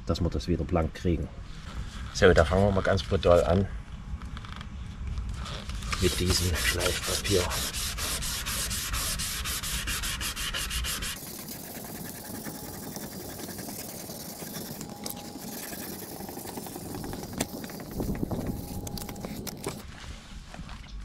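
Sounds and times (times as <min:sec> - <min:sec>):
sandpaper rubbing on plastic: 0:05.4 - 0:19.8.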